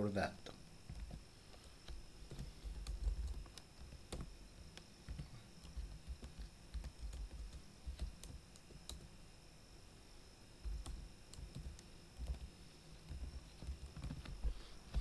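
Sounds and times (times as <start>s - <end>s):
computer keyboard typing: 0.9s - 9.1s, 10.6s - 14.4s.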